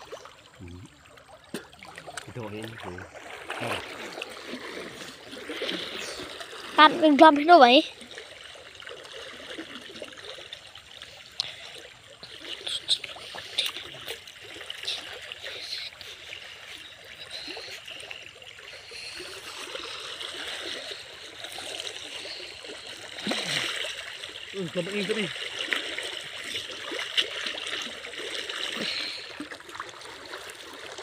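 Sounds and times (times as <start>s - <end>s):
stream water rushing: 0.0s - 31.0s
short sharp splashes: 1.3s - 10.7s, 18.8s - 31.0s.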